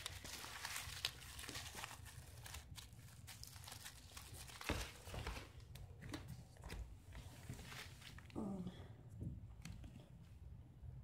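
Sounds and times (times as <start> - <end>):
bubble wrap crinkling: 0.0 - 6.7.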